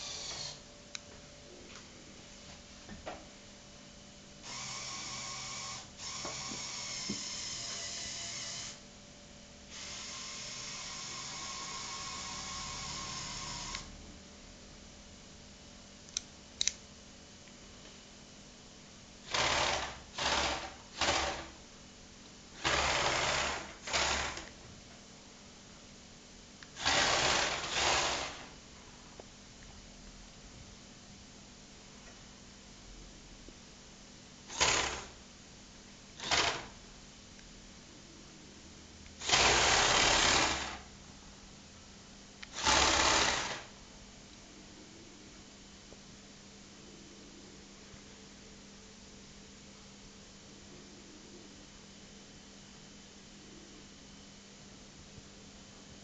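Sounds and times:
toy electric motors whirring: 0.0 - 0.6, 4.5 - 8.8, 34.5 - 35.2, 36.2 - 36.7, 42.5 - 43.7.

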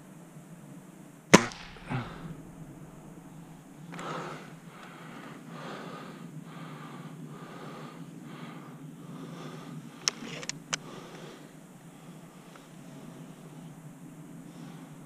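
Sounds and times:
person breathing hard: 1.6 - 15.0
sharp clicks: 10.0 - 11.2.

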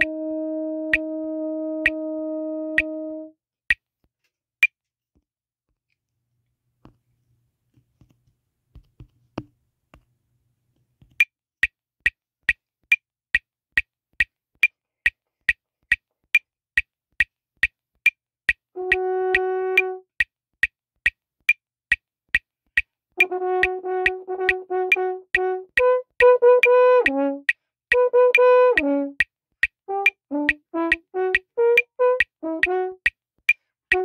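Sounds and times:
french horn notes: 0.0 - 3.4, 18.8 - 20.0, 23.2 - 29.2, 29.9 - 33.0
metronome clicking: 0.9 - 1.1, 1.8 - 2.0, 2.7 - 3.0, 18.9 - 20.3, 22.8 - 34.0.

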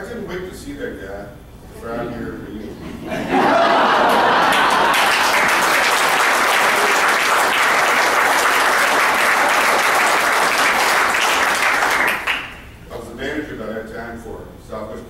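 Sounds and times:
people applauding: 3.5 - 12.7.

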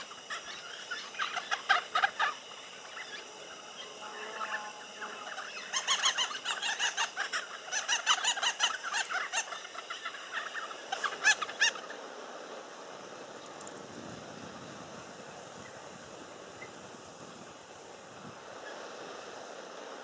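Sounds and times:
birds cackling chatter: 0.0 - 12.0
faint wind: 0.0 - 20.0.

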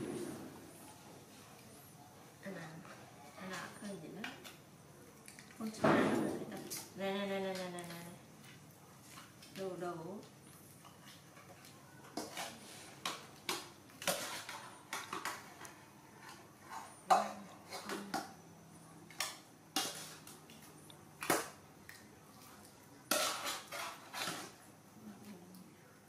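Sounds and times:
metal pots and ladle clinking: 23.1 - 24.5.

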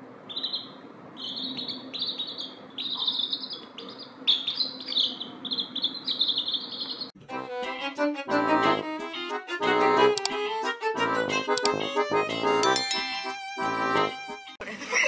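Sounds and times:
baby chickens peeping: 0.3 - 7.1
accordion music: 7.2 - 14.6.

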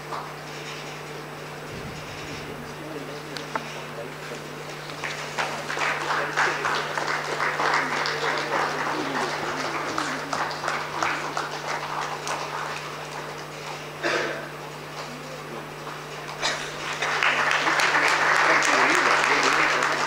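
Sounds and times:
audience applauding: 4.5 - 14.0, 14.6 - 20.0.

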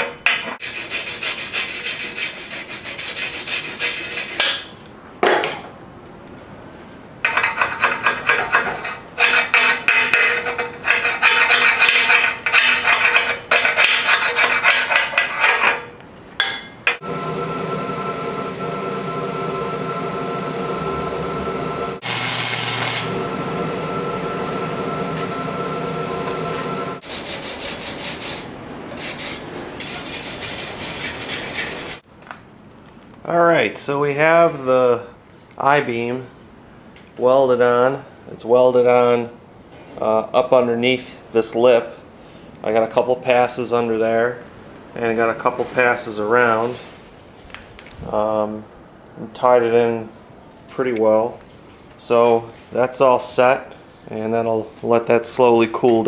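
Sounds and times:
steady hum: 12.0 - 32.0.

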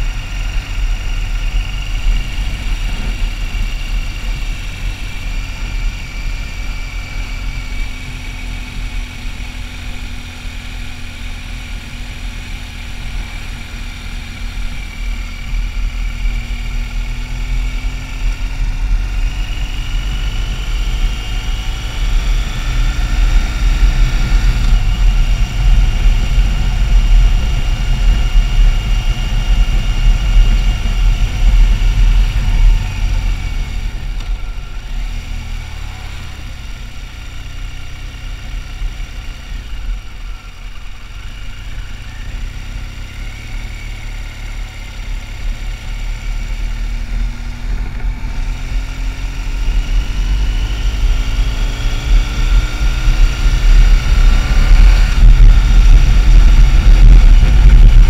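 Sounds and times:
motorcycle engine revving: 0.0 - 58.0
wind noise on microphone: 50.0 - 58.0.

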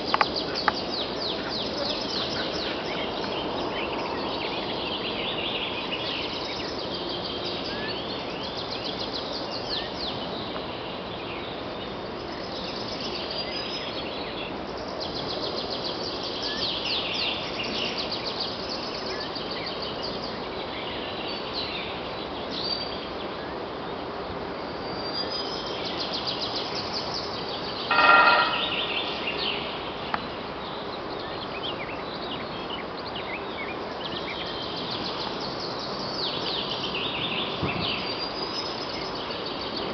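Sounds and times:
songbirds chirping: 0.0 - 39.9
steady outdoor hiss: 0.0 - 39.9
woodpecker drumming on metal: 27.9 - 28.9.

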